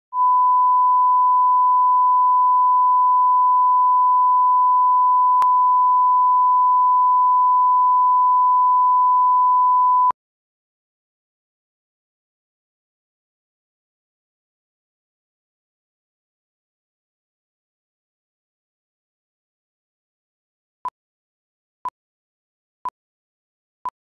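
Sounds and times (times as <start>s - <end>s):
pure test tone beep: 0.2s - 10.1s.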